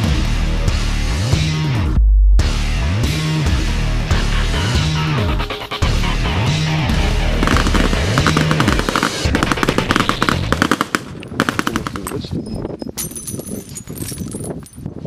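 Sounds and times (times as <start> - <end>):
automatic rifles firing: 7.4 - 12.4.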